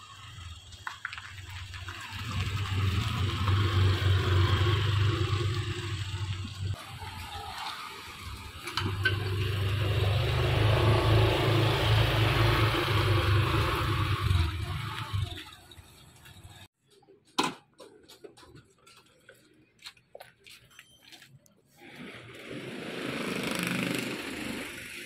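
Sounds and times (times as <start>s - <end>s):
scooters riding past: 0.0s - 16.7s, 21.8s - 25.0s.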